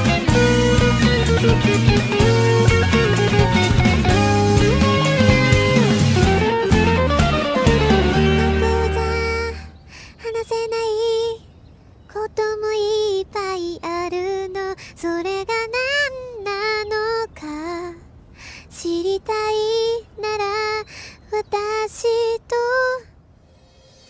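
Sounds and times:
woman singing pop song: 8.5 - 11.4, 12.1 - 23.1.

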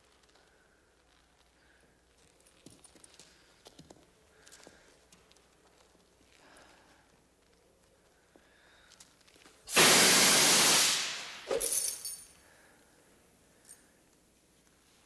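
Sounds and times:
loud hiss: 9.7 - 11.8.

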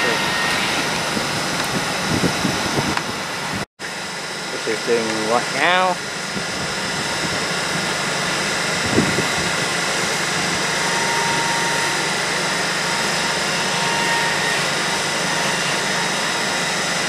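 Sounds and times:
train mechanical hum: 0.0 - 17.0
faint high whining tones: 7.8 - 17.0.

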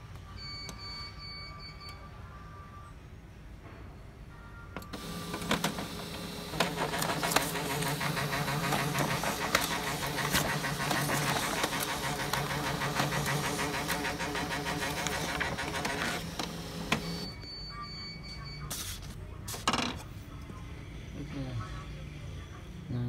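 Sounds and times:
laser printer running: 4.9 - 17.4.

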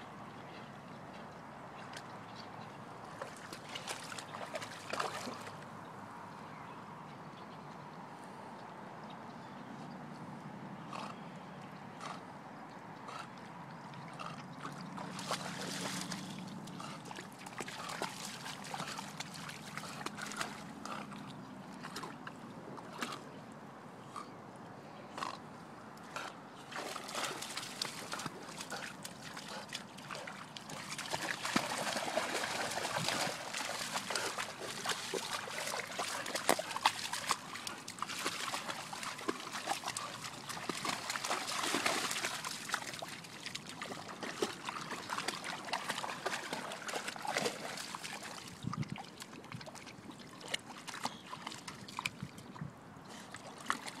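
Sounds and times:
dog splashing in water: 3.2 - 5.6, 14.6 - 21.2, 26.7 - 52.4, 53.3 - 54.0.

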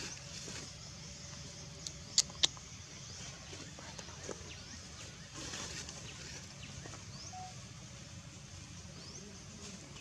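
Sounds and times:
high rising chirps: 7.2 - 7.6.

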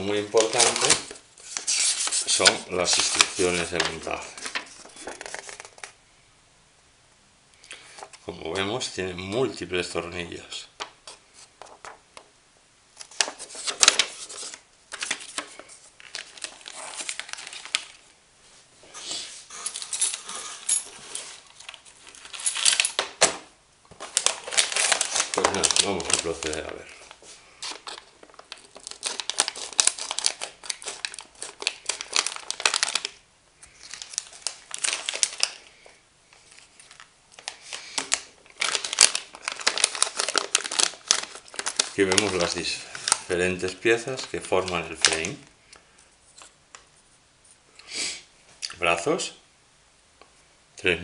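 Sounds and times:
paper and plastic bags crinkling: 0.0 - 6.0, 13.0 - 18.1, 19.4 - 45.5.

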